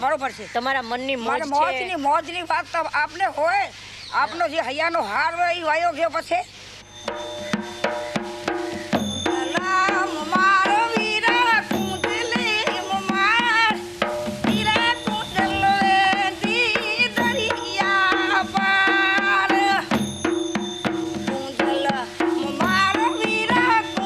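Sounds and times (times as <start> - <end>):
steady drum beat: 6.9 - 24.0
woman singing with vibrato: 9.2 - 20.2, 21.1 - 24.0.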